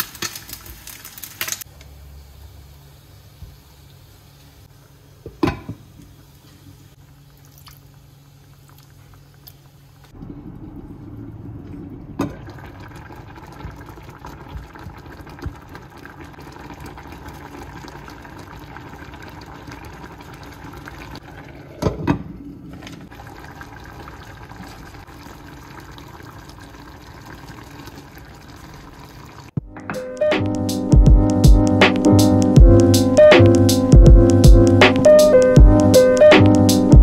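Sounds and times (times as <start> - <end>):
bubbling water: 7.3 - 21.8, 23.1 - 29.6.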